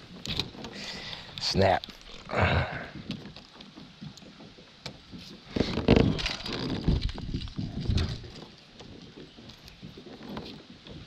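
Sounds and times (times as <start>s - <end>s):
fishing gear knocking and rustling: 0.0s - 11.0s.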